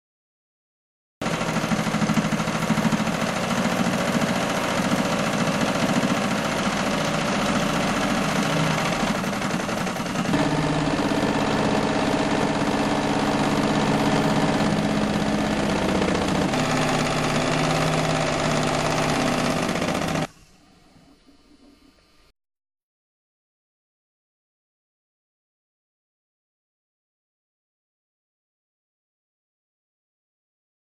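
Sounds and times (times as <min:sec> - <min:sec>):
sewing machine needle clatter: 0:01.2 - 0:20.3
sewing machine motor hum: 0:01.2 - 0:20.4.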